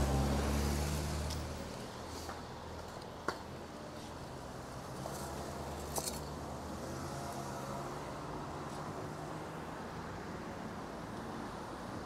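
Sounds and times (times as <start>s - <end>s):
low vehicle engine drone: 0.0s - 9.6s
traffic hum: 0.0s - 12.0s.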